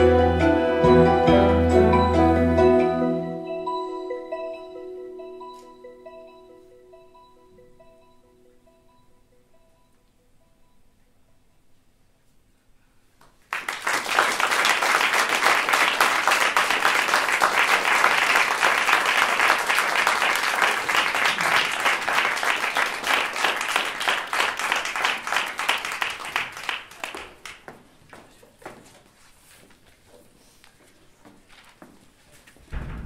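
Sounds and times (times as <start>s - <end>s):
audience applauding: 13.4s - 27.7s.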